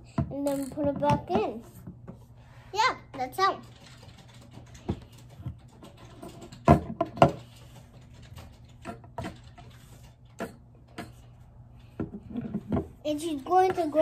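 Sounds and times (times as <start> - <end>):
plastic toy bricks clicking: 0.4 - 0.9.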